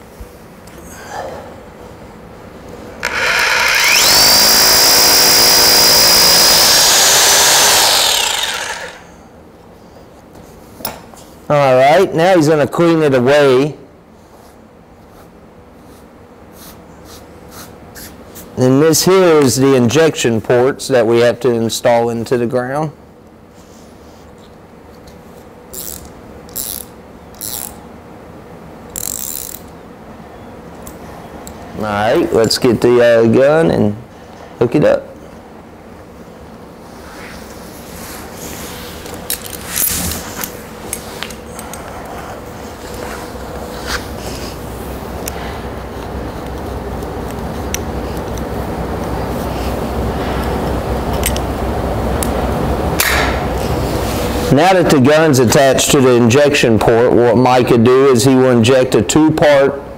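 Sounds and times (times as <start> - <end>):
hammer drill boring into concrete: 3.0 - 9.1
ratchet wrench clicking: 25.8 - 27.8, 28.9 - 29.7.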